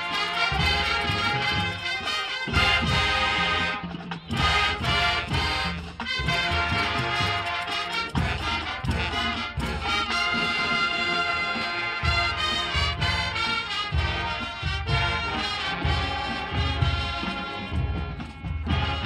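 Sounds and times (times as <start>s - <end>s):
drum line hits: 0.0s - 19.0s
marching band brass: 0.0s - 19.0s.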